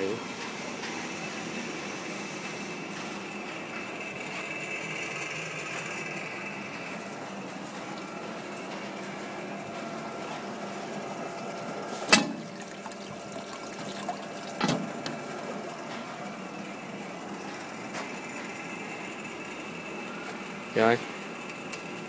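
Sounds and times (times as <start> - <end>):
machine motor hum: 0.0 - 22.0
water splashing into steel tray: 12.1 - 14.8.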